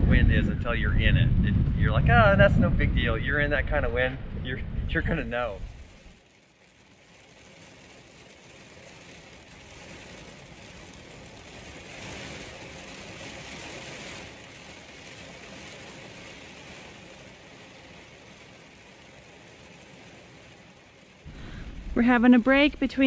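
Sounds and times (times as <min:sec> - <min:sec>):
heavy rain on vehicle: 0:00.0 - 0:23.0.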